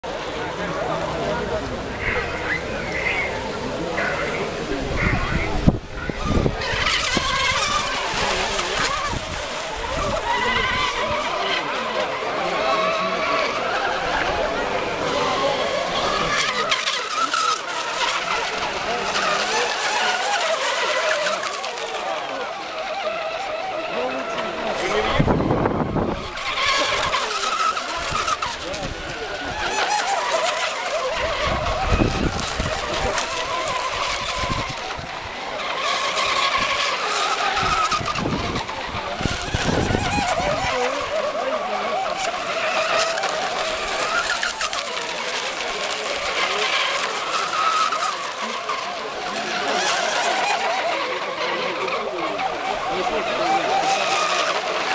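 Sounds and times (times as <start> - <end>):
electric motors whining: 0.0 - 54.9.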